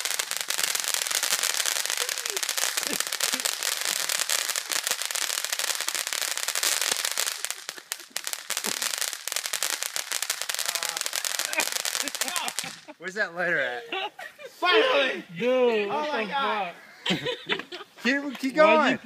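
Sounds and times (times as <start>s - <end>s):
firework crackling hiss: 0.0s - 13.0s.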